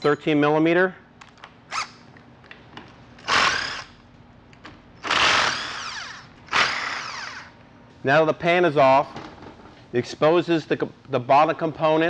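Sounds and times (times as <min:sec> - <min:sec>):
impact driver bursts: 0:03.2 - 0:03.9, 0:05.0 - 0:07.5.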